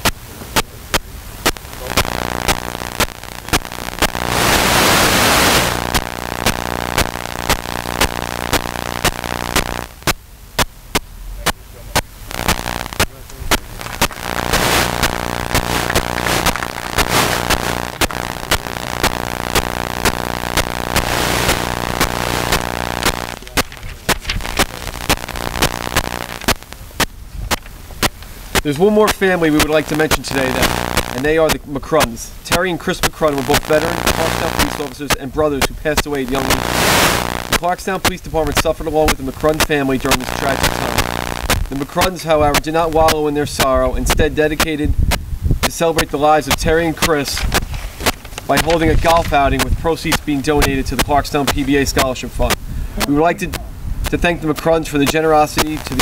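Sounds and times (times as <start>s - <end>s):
loud rush of hiss: 0.0s - 10.2s, 12.0s - 31.1s
sharp repeating clicks: 0.0s - 43.2s, 45.6s - 53.1s
steady low hum: 0.0s - 44.2s
hand claps: 13.5s - 14.9s, 15.5s - 18.2s.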